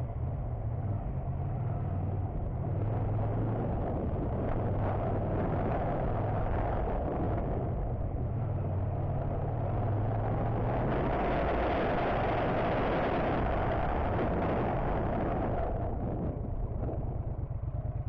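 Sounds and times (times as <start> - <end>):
wind and road noise: 0.0 - 18.0
motorcycle engine running: 11.9 - 18.0.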